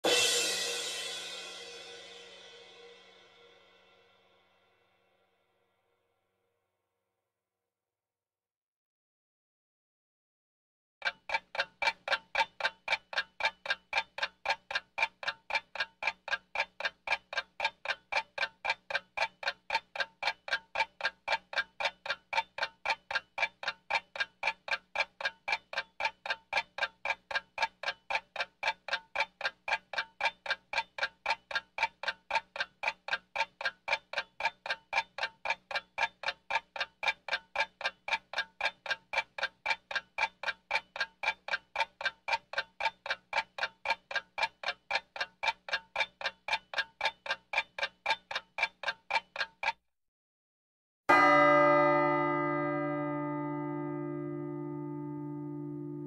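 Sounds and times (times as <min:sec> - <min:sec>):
mechanical clock ticking: 0:11.0 - 0:49.8.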